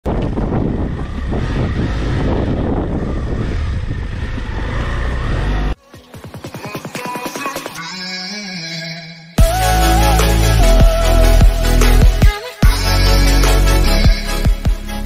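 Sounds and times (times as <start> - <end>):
wind buffeting microphone: 0.0 - 5.5.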